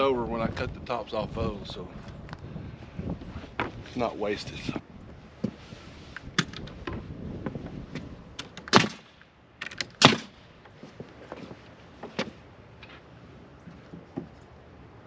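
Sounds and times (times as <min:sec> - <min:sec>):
nail gun firing into wood: 0:08.4 - 0:10.4.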